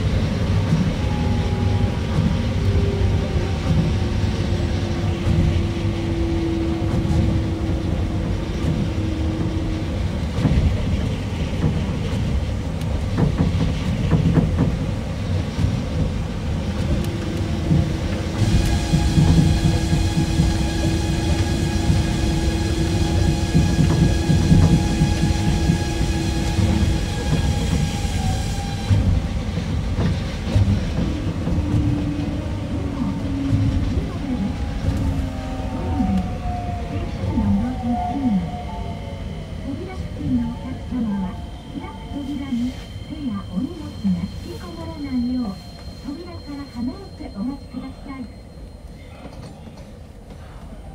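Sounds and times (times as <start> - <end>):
monorail train rumbling: 0.0 - 50.9.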